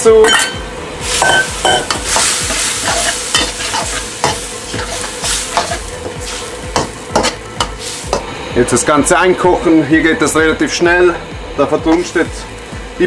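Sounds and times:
chicken sizzling in a wok: 0.6s - 13.0s
metal spatula scraping a wok: 1.0s - 8.3s.

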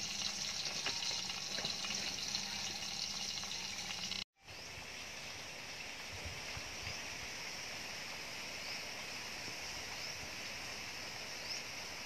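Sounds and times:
wood fire crackling: 0.0s - 4.2s
oil sizzling in a covered pot: 0.0s - 4.3s
steady hiss: 0.0s - 12.0s.

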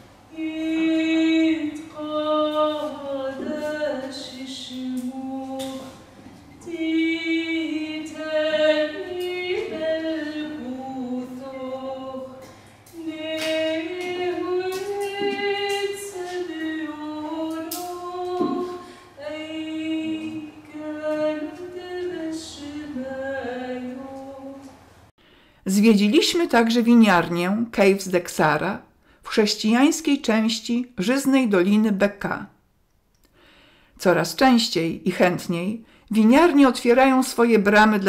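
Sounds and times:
woman singing solo: 0.3s - 24.7s.

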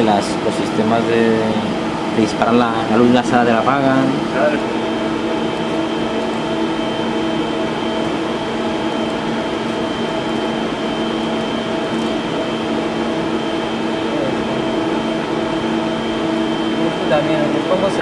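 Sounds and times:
projector cooling fans whirring: 0.0s - 18.0s.

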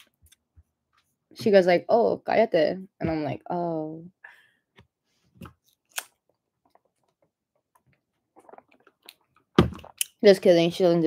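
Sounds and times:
person speaking: 1.4s - 4.1s
person sipping through a straw: 8.4s - 9.0s.

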